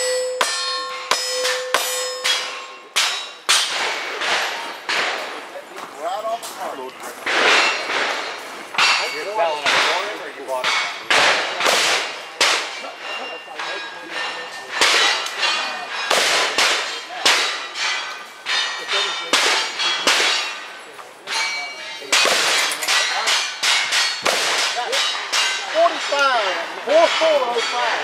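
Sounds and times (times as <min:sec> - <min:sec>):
steel targets ringing: 0:00.0 - 0:05.3, 0:07.3 - 0:28.0
rapid gunshots: 0:11.1 - 0:12.8, 0:16.1 - 0:17.7, 0:23.7 - 0:25.1.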